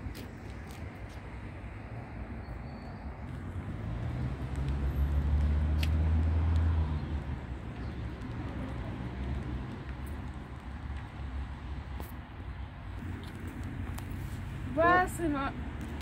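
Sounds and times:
outdoor background noise: 0:00.0 - 0:16.0
vehicle engine rumble: 0:00.0 - 0:16.0.

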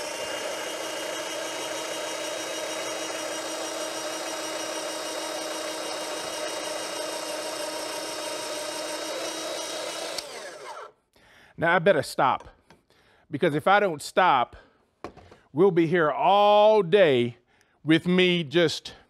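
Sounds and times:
electric slicer motor whining: 0:00.0 - 0:11.0.

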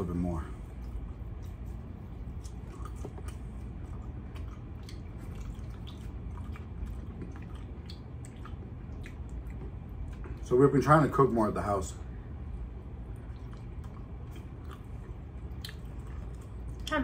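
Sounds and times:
low steady hum: 0:00.0 - 0:17.0
wet chewing and lip-smacking: 0:00.5 - 0:10.6, 0:12.7 - 0:17.0.

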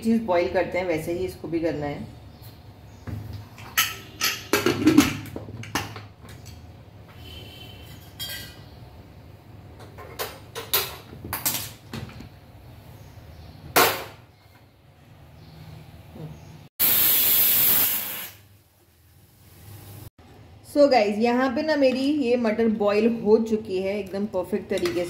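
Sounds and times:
metal kitchenware clinking and knocking: 0:03.6 - 0:06.6, 0:07.8 - 0:08.7, 0:09.8 - 0:12.2, 0:24.7 - 0:25.0.

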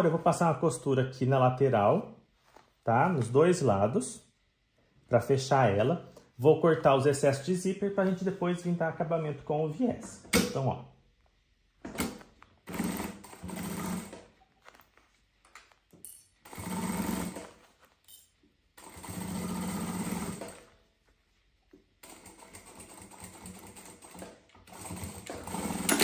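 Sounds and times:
sewing machine stitching: 0:12.6 - 0:14.3, 0:16.4 - 0:17.6, 0:18.8 - 0:20.7, 0:22.0 - 0:26.0.

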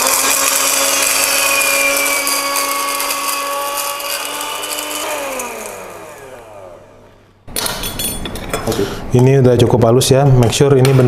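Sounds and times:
gritty hiss of grinding spices: 0:00.0 - 0:05.8
blender motor whine: 0:00.0 - 0:07.2.

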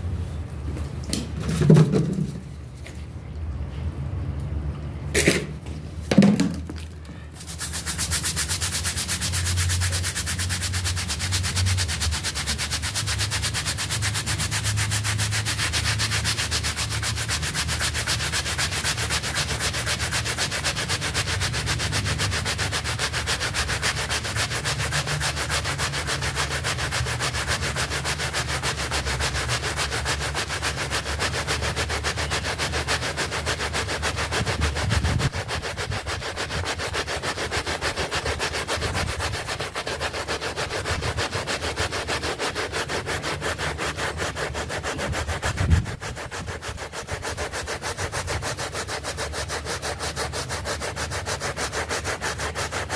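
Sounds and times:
brush scrubbing soapy mat: 0:01.2 - 0:03.0, 0:06.2 - 0:52.9
brief knocks: 0:05.2 - 0:06.9.

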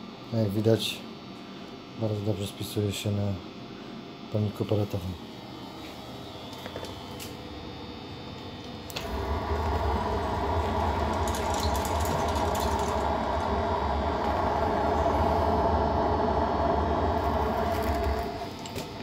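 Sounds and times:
pellet burner fan and flame: 0:08.2 - 0:19.0
burner click: 0:08.9 - 0:19.0
deep continuous rumble: 0:09.0 - 0:18.7.

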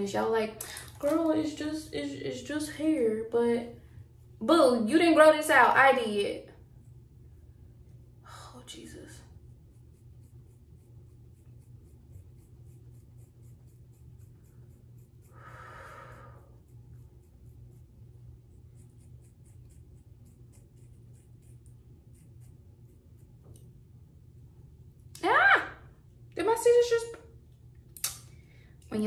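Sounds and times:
scissors snipping hair: 0:28.0 - 0:28.3.

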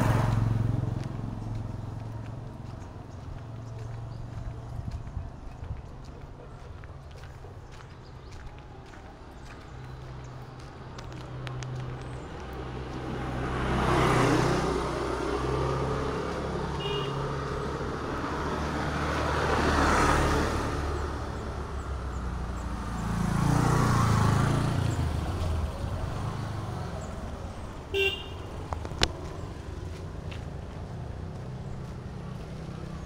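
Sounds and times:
low engine hum: 0:00.0 - 0:33.0
vehicles passing: 0:00.0 - 0:33.0
vehicle horn beep: 0:16.7 - 0:17.3, 0:27.9 - 0:28.6.

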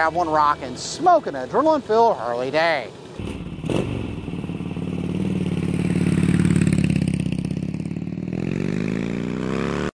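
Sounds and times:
motorcycle engine pulsing and revving: 0:03.2 - 0:09.9.

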